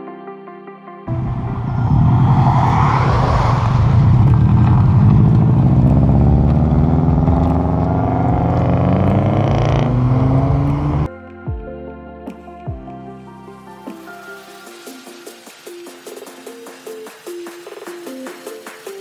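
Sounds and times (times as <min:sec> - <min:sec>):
car engines accelerating: 0:01.1 - 0:11.1
hiss: 0:14.0 - 0:19.0.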